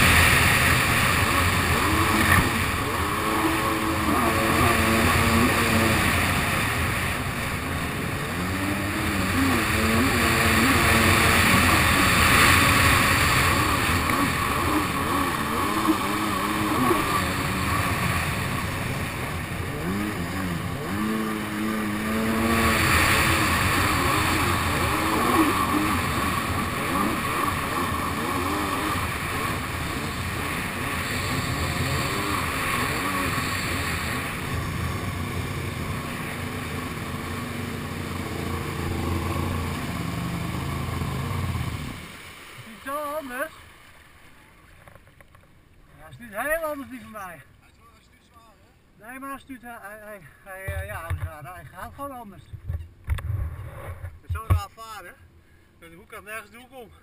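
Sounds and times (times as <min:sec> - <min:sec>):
jet ski engine revving: 0:00.0 - 0:43.4.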